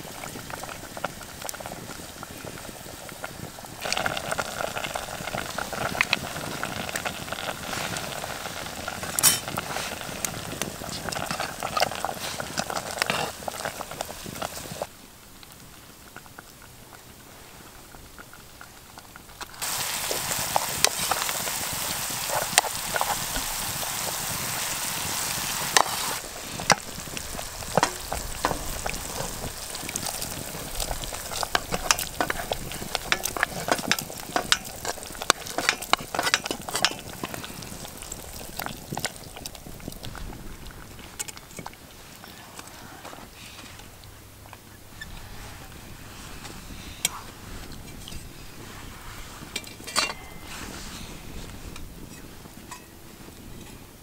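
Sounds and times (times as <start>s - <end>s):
food sizzling: 0.0s - 53.7s
pot bubbling: 0.0s - 54.0s.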